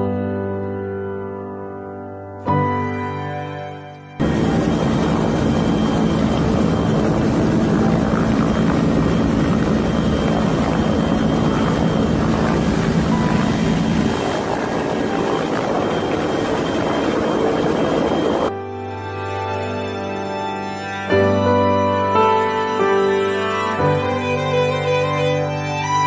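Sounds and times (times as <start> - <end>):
helicopter hovering overhead: 4.2 - 18.5.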